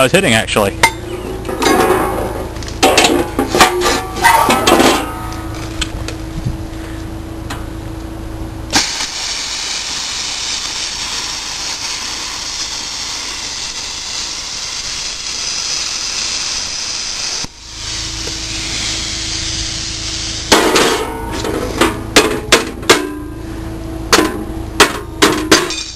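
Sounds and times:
low hum: 0.7 - 16.0
plasma cutter hissing: 8.7 - 21.1.

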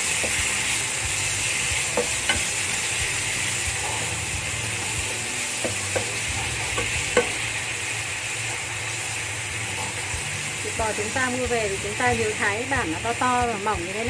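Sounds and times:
beef sizzling in a pan: 0.0 - 14.0
wooden spatula knocking on pan: 1.9 - 2.5.

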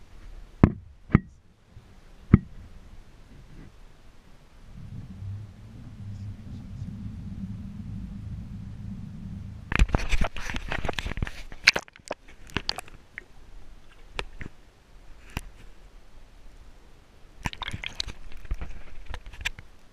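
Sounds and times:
muffled underwater ticks and knocks: 0.6 - 1.4, 2.3 - 2.6, 4.8 - 13.3
water splashing against camera: 4.7 - 13.3, 17.4 - 19.5.

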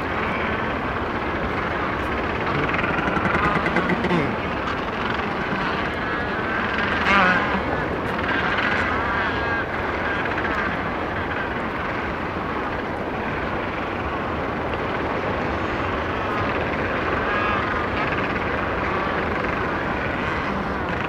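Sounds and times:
warbling penguin calls: 0.0 - 12.1
din of penguin colony: 0.0 - 21.0
distant sea: 0.0 - 21.0.

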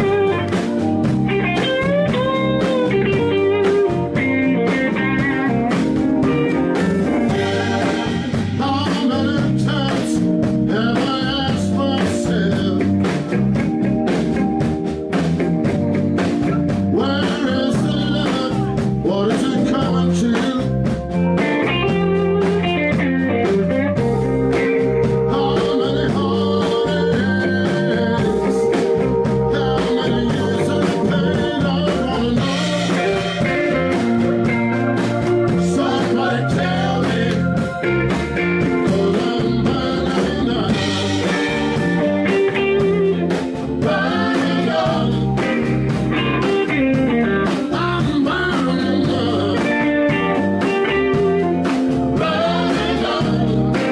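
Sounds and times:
drums: 0.0 - 53.9
electric guitar: 0.0 - 53.9
man singing: 7.3 - 13.3, 16.9 - 20.9, 25.2 - 34.0, 35.5 - 45.7, 46.4 - 53.9.

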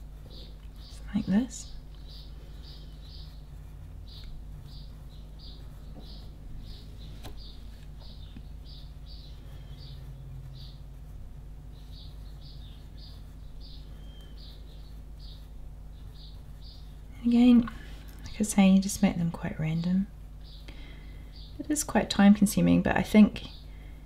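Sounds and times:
pencil scratching on paper: 0.0 - 7.0, 8.7 - 17.6
steady low hum: 0.0 - 24.0.

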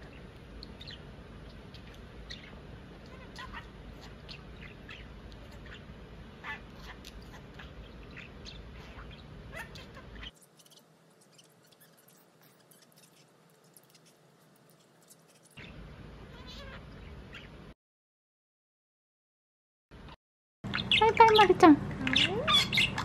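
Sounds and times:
background hum: 0.0 - 17.8, 20.0 - 23.0
budgerigar chirping: 0.8 - 14.2, 15.4 - 17.6, 20.7 - 23.0.

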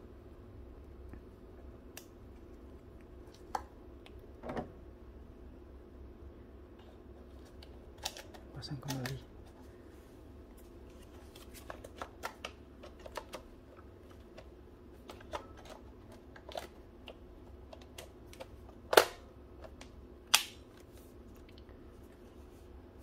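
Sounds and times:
loud plastic snaps: 17.8 - 20.8.

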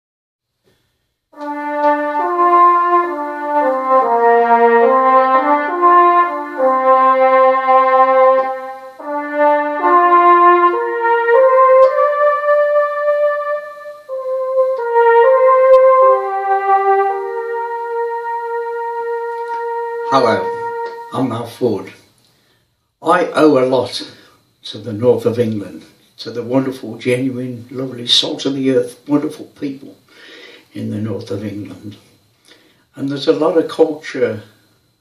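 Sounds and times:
keyboard brass chords melody: 1.3 - 21.9.

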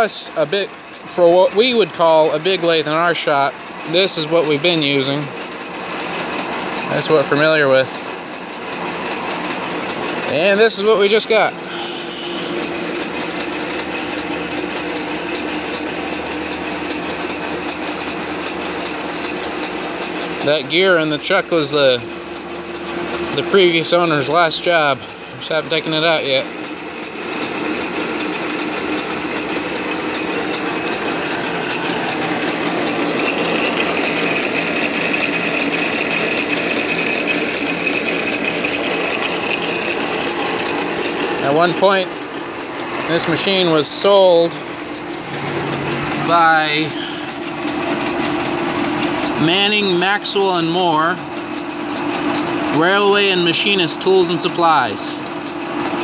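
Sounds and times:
constant hum: 0.0 - 56.0
lathe mechanical whir: 0.0 - 56.0
high whine: 9.4 - 52.0.

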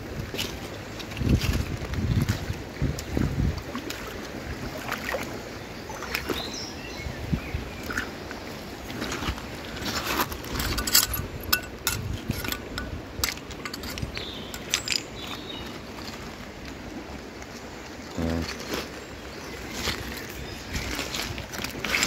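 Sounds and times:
running river water: 0.0 - 22.0
pebbles clicking on riverbed: 8.9 - 17.5.

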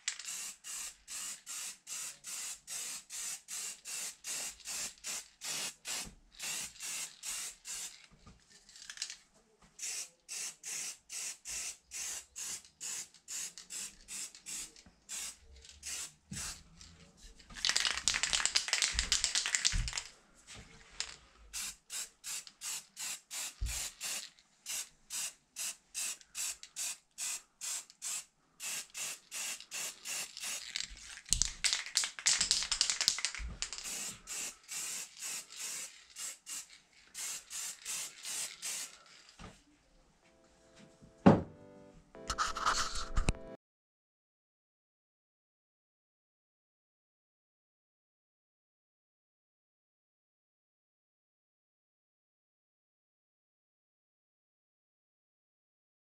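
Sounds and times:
spray paint can spurts: 0.0 - 8.0, 9.8 - 16.6, 17.6 - 20.1, 21.0 - 39.3, 42.3 - 43.3.

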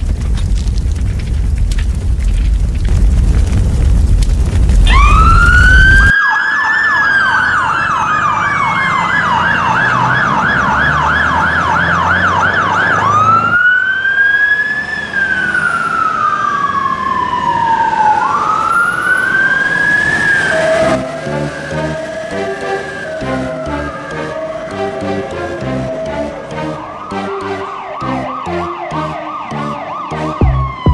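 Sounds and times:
emergency siren yelping and wailing: 4.7 - 30.9
music: 20.8 - 30.9.

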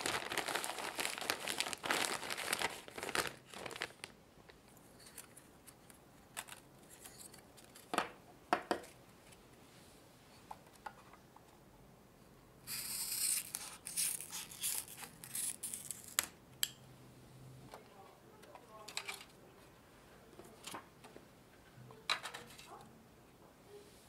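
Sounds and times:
plastic film crinkling: 0.0 - 4.2, 12.8 - 16.4.

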